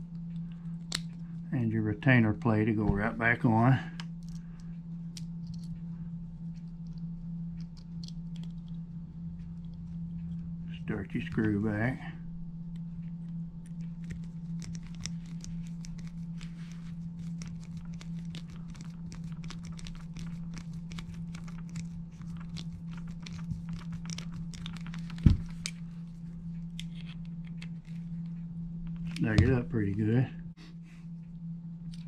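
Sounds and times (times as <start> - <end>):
low hum: 0.0 - 32.0.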